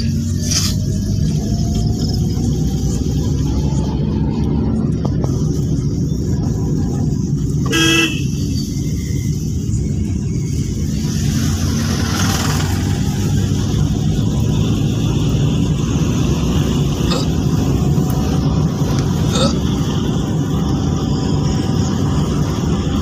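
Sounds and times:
car engine and road rumble: 0.0s - 23.0s
car horn toot: 7.6s - 8.4s.

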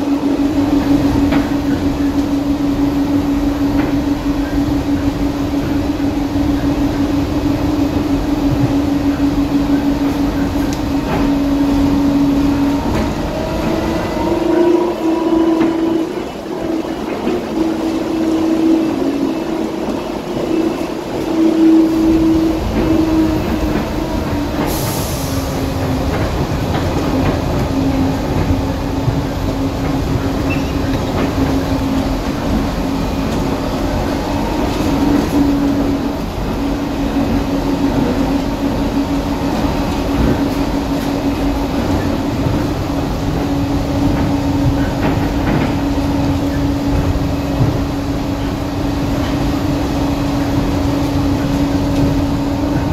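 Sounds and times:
train running with steady hum: 0.0s - 52.9s.

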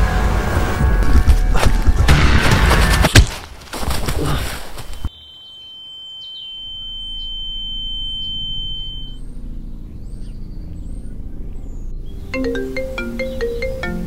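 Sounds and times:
birds chirping: 4.2s - 14.0s
high-pitched ringing tone: 5.1s - 9.6s
low drone: 6.5s - 13.2s.

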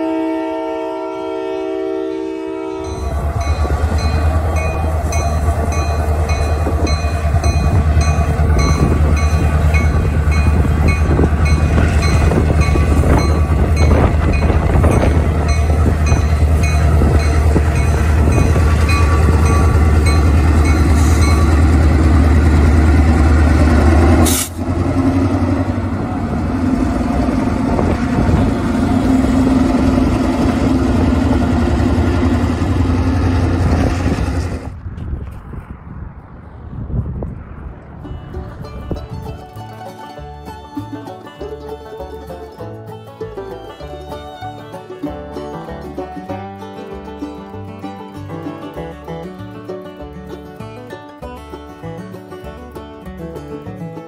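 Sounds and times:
locomotive engine rumbling: 0.0s - 54.0s
bell ringing: 2.8s - 21.7s.

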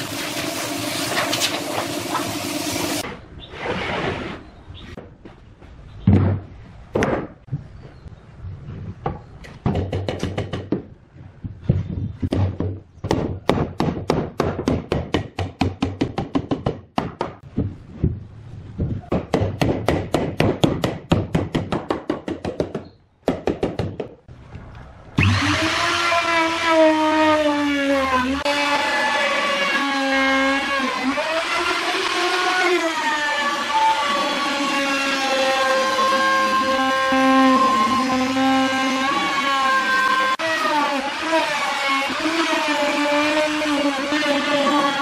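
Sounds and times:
router motor running: 25.2s - 45.0s.

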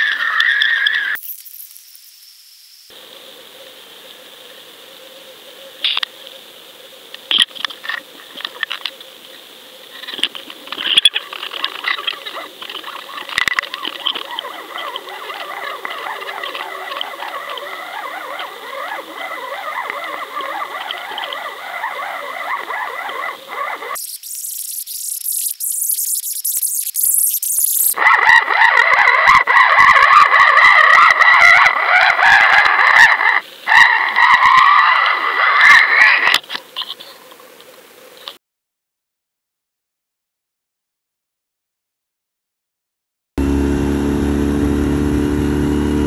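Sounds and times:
dense crackle with chirping: 0.0s - 38.4s
high hiss: 1.2s - 7.3s, 24.0s - 28.0s
loud warbling: 11.8s - 36.3s.

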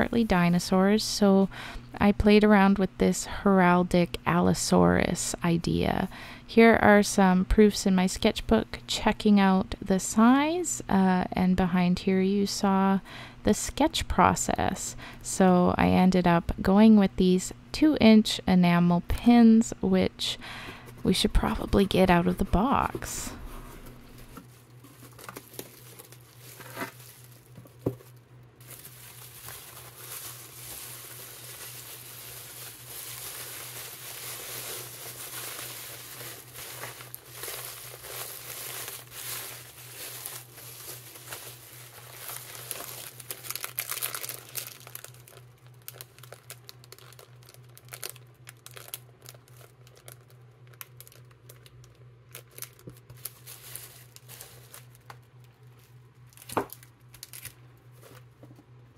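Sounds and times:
plastic crinkling: 21.0s - 58.4s.

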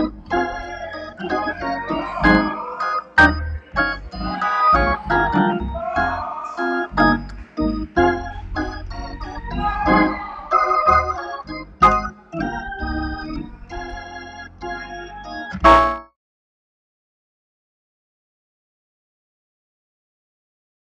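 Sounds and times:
organ chords: 0.0s - 16.2s.

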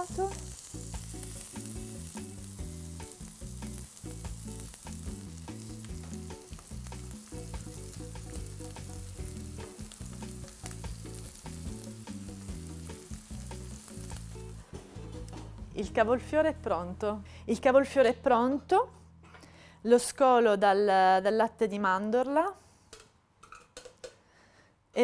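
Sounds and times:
cauliflower sizzling in hot oil: 0.0s - 15.3s.

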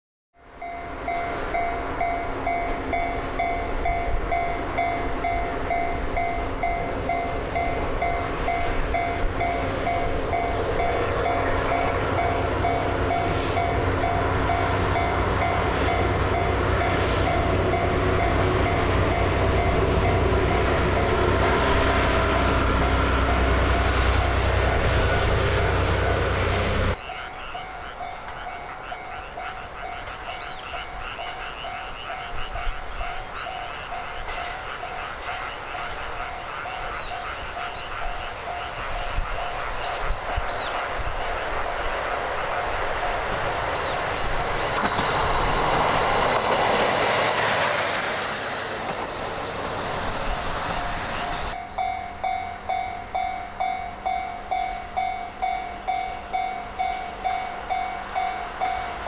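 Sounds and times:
train rumbling past: 0.4s - 59.0s
frog chorus: 27.0s - 41.7s.

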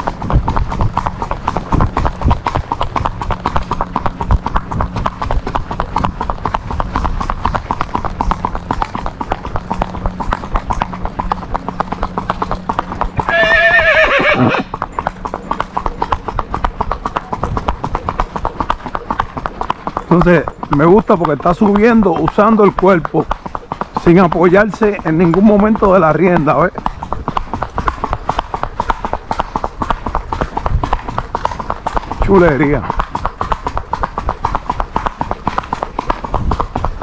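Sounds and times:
hooves on asphalt: 0.0s - 37.0s
horse whinny: 13.2s - 14.9s.

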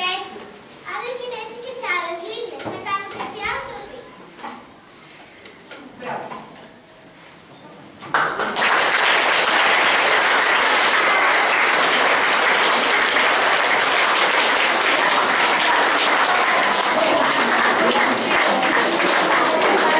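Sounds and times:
children applauding: 8.2s - 19.9s.

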